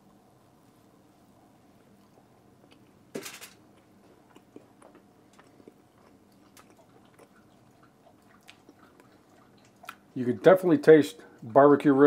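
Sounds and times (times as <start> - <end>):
person biting and chewing meat: 3.6 - 10.2.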